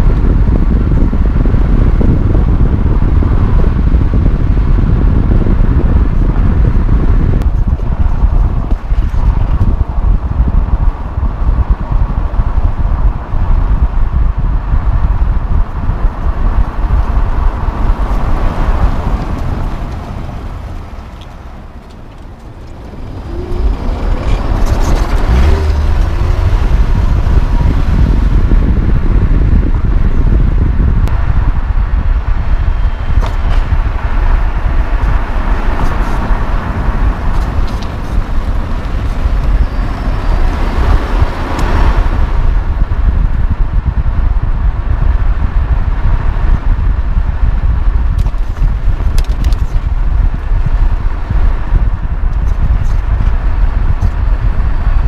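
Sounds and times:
tyre noise on pavement: 0.0s - 55.0s
wind buffeting on microphone: 0.0s - 55.0s.

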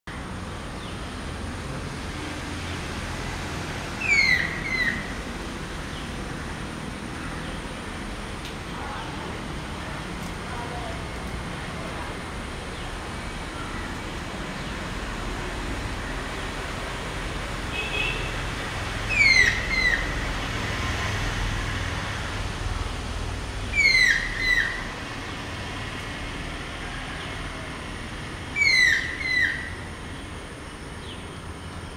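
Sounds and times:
kingfisher whistled calls: 4.0s - 5.1s, 19.1s - 20.1s, 23.8s - 24.9s, 28.5s - 29.8s.

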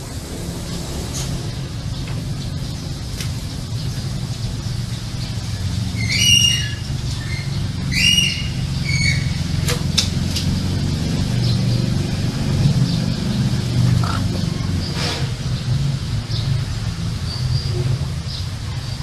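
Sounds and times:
steady low hum: 0.0s - 6.0s, 10.6s - 15.0s
rooster squawking: 13.8s - 14.8s.

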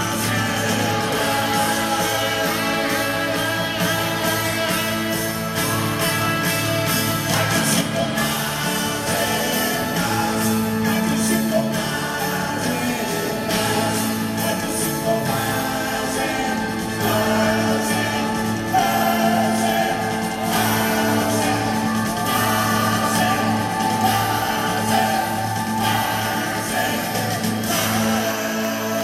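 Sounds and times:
rock band playing live: 0.0s - 29.0s.

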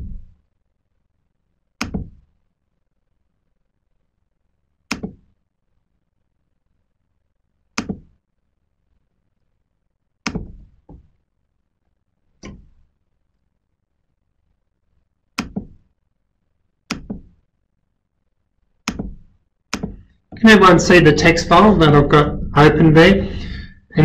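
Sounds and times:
computer clicks and knocks: 1.8s - 2.3s, 4.8s - 5.4s, 7.8s - 8.2s, 10.2s - 11.1s, 12.4s - 12.8s, 15.3s - 15.9s, 16.9s - 17.5s, 18.8s - 20.4s.

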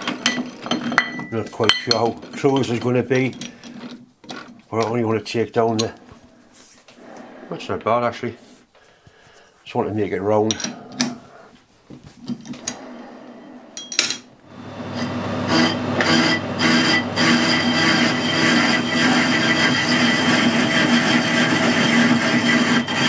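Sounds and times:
metal lathe running with gear whine: 14.5s - 23.0s.

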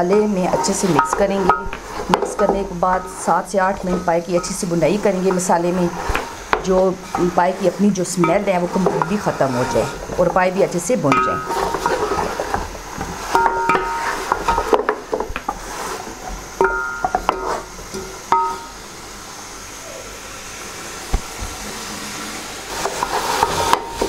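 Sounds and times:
wooden spoon knocking metal pot: 0.0s - 9.4s, 10.1s - 15.5s, 16.6s - 17.4s
frying hiss: 0.0s - 24.0s.

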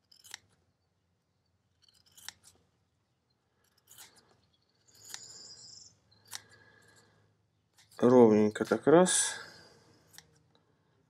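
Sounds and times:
faint scissors snipping: 6.2s - 6.6s, 10.0s - 10.4s.

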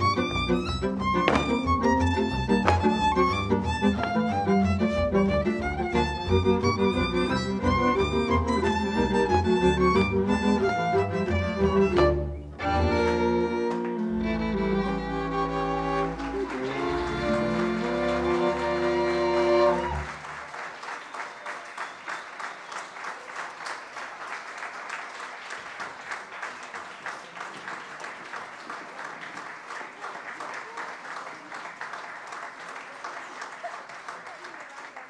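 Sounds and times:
audience applauding: 0.0s - 11.9s, 13.0s - 35.0s
folk string band playing: 0.0s - 20.3s.

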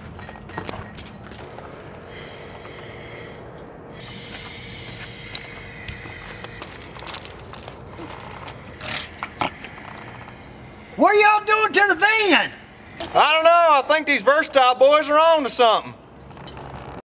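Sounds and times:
aerosol spray can hissing: 2.1s - 3.4s, 4.0s - 7.1s, 7.9s - 13.9s.

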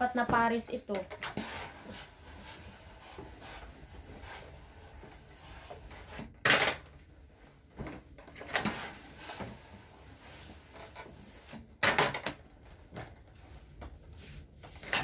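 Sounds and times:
steam iron hissing: 1.3s - 6.2s, 8.6s - 11.6s.

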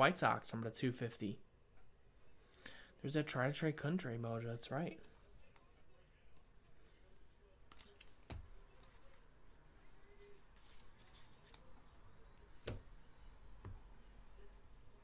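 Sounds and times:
trading cards rustling and sliding: 7.6s - 12.8s.

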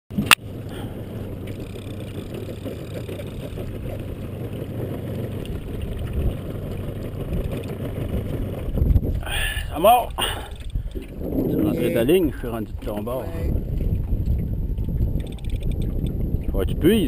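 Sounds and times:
outboard boat engine rumble: 0.1s - 17.0s.

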